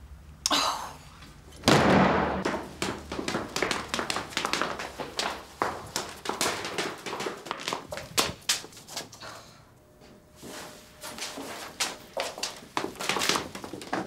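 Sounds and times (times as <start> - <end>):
footsteps on stone stairs: 2.4 - 9.1, 10.4 - 14.0.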